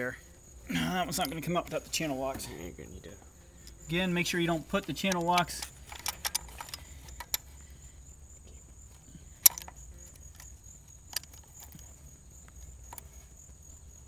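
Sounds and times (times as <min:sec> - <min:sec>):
faint high whine: 0:00.0 - 0:14.0
pliers clicking on metal: 0:04.8 - 0:07.5, 0:09.4 - 0:11.9.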